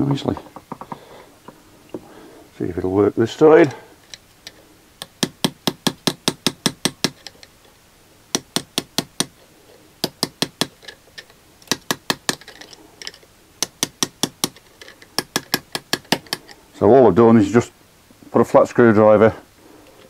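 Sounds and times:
hammer tapping on screwdriver: 5.0 - 7.3, 8.4 - 9.4, 10.0 - 10.8, 15.2 - 16.5.

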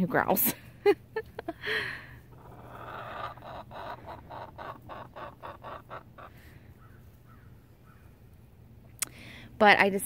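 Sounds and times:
hen clucking: 2.3 - 7.6.

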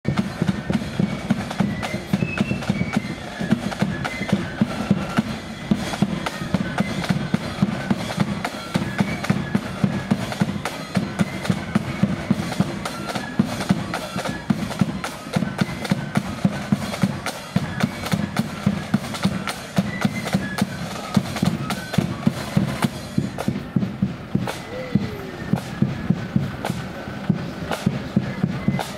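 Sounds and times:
snare drum rolls: 0.0 - 28.9
high flute melody: 0.1 - 28.9.

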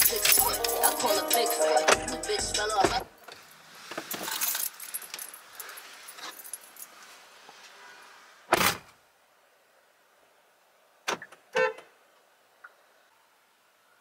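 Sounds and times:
keys jangling: 0.0 - 1.6, 4.1 - 6.9.

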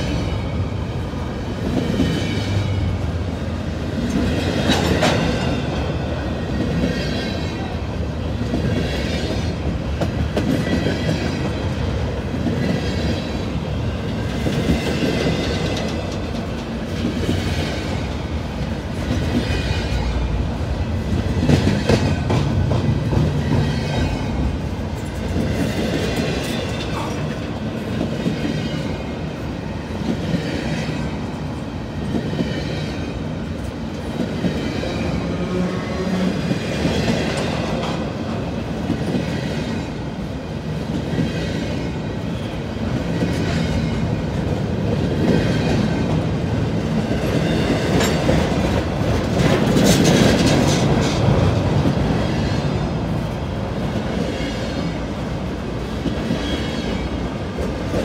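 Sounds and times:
train cars rattling: 0.0 - 58.0
train wheels rumbling on rail: 0.0 - 58.0.

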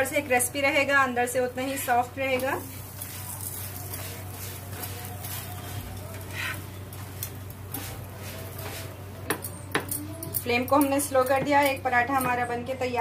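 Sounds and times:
flatbread sizzling on a griddle: 0.0 - 9.8
metal tongs clicking: 9.3 - 12.3.

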